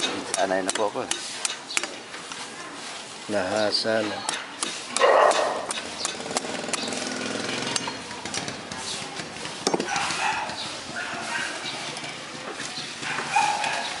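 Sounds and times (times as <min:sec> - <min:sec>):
machete chopping coconut husk: 0:00.0 - 0:02.4, 0:03.8 - 0:12.0.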